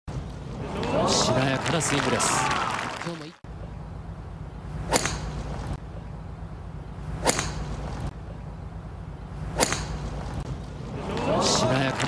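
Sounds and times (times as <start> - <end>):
low background hum: 0.1 - 12.0
golf driver striking ball: 4.9 - 5.4, 7.2 - 7.8, 9.5 - 10.1.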